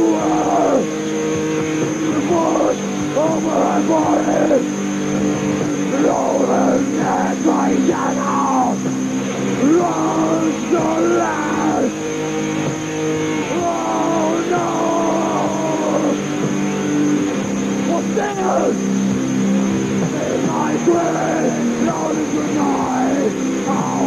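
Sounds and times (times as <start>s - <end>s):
sustained electric guitar chords: 0.0s - 24.0s
man singing: 5.9s - 8.8s, 9.6s - 11.9s, 13.5s - 16.2s, 20.1s - 24.0s.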